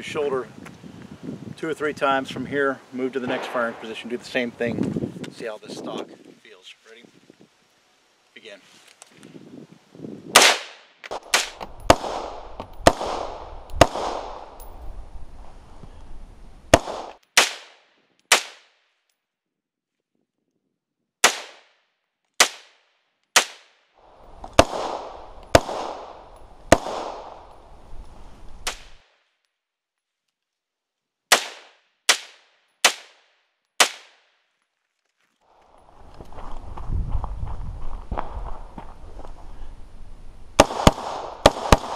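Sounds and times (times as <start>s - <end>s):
rifle shots with echo: 3.2s - 4.4s, 10.4s - 14.6s, 16.7s - 18.7s, 24.5s - 27.6s, 40.6s - 41.9s.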